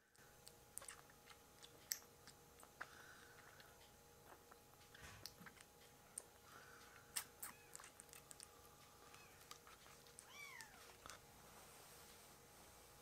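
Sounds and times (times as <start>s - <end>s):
kitten suckling wet clicks: 0.4s - 11.2s
kitten mewing: 7.2s - 8.1s, 10.2s - 10.9s.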